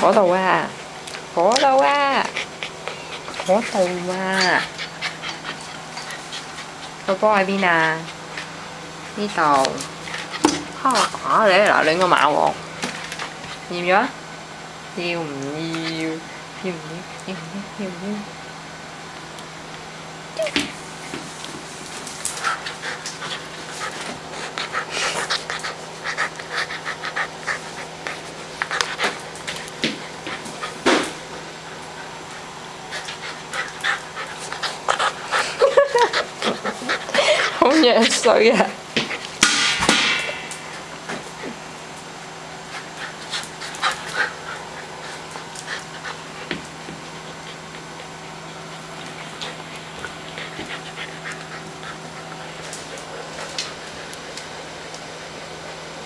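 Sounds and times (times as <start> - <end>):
puppy panting: 1.1 - 14.1, 20.4 - 39.4, 42.5 - 55.0.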